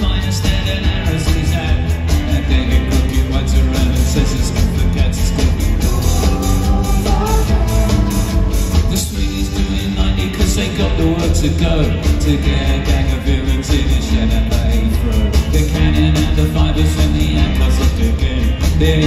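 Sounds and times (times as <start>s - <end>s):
rock band playing: 0.0s - 19.0s.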